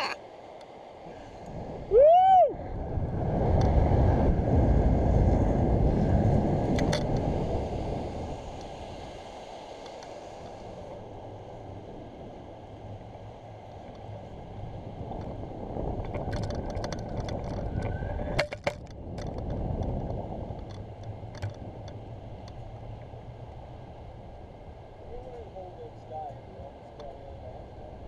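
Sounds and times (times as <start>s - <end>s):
wind rushing over microphone: 0.9s - 28.0s
person yelling: 1.9s - 2.6s.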